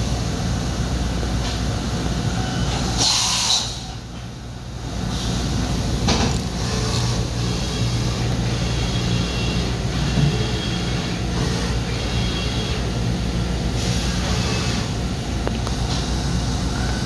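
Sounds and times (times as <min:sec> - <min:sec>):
machining center humming: 0:03.7 - 0:17.0.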